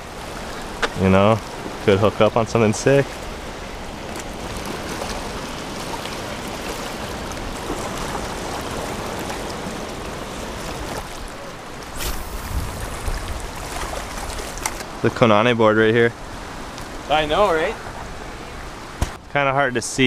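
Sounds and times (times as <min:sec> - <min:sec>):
small waves lapping on rocks: 0:00.0 - 0:15.1
wind buffeting microphone: 0:11.9 - 0:14.7.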